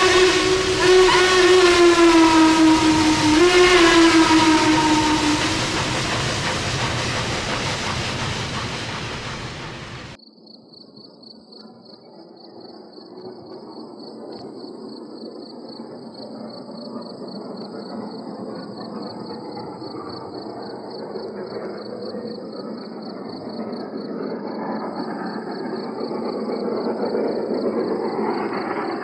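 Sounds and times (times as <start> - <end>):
running train noise: 0.0 - 10.2, 12.2 - 29.0
train whistle blowing: 0.0 - 10.2.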